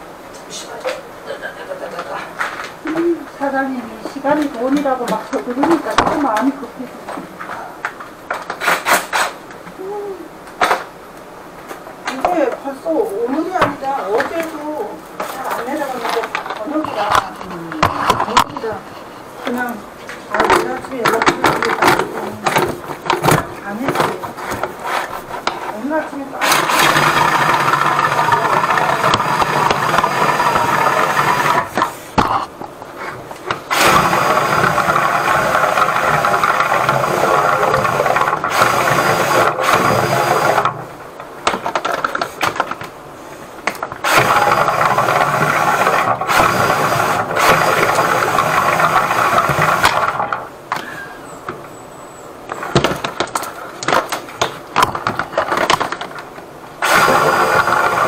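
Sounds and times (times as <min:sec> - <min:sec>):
drain-cleaning machine running: 0:26.2 - 0:32.0, 0:33.6 - 0:41.0, 0:43.9 - 0:51.0, 0:56.8 - 0:58.0.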